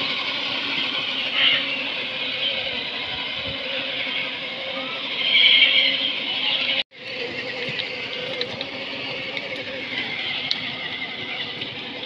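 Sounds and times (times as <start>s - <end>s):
toy electric motor running: 0.0s - 12.0s.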